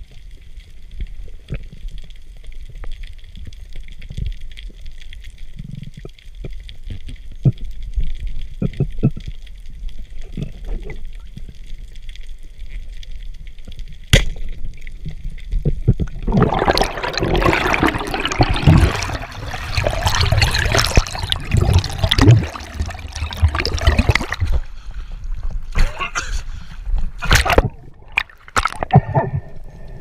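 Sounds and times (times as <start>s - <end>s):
bubbles and churning water: 0.0s - 25.7s, 26.9s - 30.0s
sharp underwater crack: 16.0s - 24.6s, 27.2s - 29.5s.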